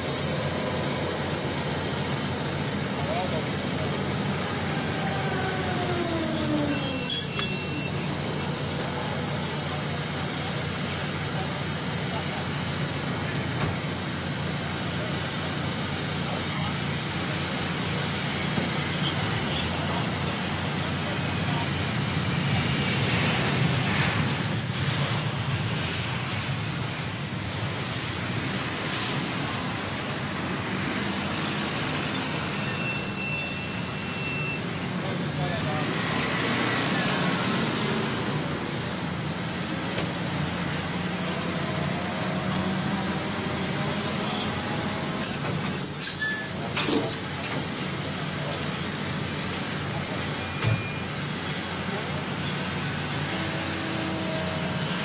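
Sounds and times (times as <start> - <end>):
jet engine whine: 0.0 - 55.0
jet engine rumble: 8.1 - 32.6.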